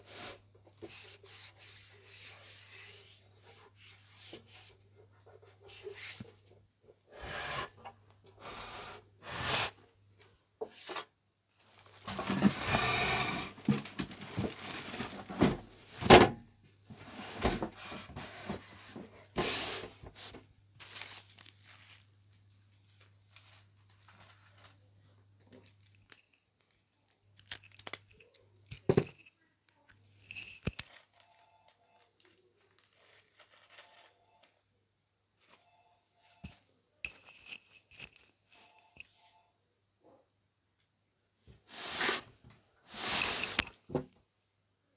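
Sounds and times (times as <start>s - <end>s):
packaging rustling and scraping: 11.6s - 16.1s, 16.9s - 22.2s, 22.8s - 24.9s, 25.5s - 29.2s, 30.2s - 34.2s, 41.7s - 43.8s.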